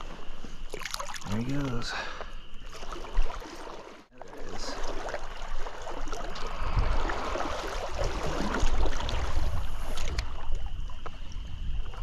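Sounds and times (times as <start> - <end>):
stream running: 0.6 - 12.0
wind rumbling on microphone: 4.6 - 12.0.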